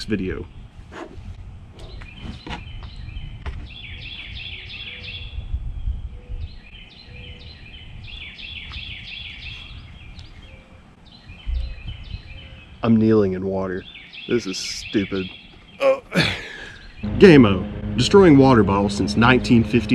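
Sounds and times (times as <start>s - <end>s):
birds chirping: 0.0s - 19.9s
low rumble: 17.0s - 19.9s.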